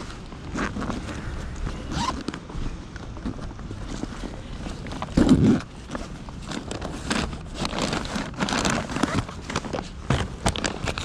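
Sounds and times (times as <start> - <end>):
hand rummaging in insulated bag: 0.0 - 11.0
paper bag rustling: 0.0 - 11.0.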